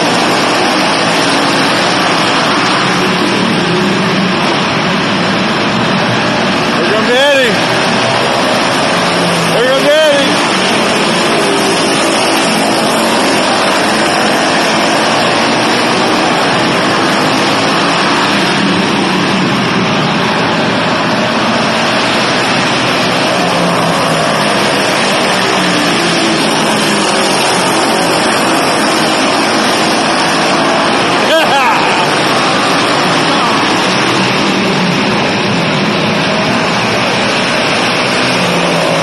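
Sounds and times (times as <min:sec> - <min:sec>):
small engines droning: 0:00.0 - 0:39.0.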